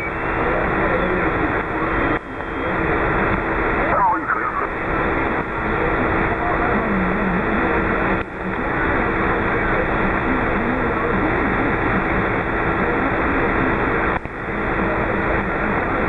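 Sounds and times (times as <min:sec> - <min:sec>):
faint distant radio voice: 0:00.0 - 0:05.0
radio static hiss: 0:00.0 - 0:16.0.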